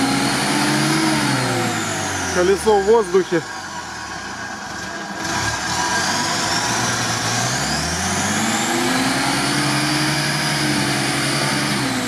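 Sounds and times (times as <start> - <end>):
off-road vehicle engine revving: 0.0 - 12.0.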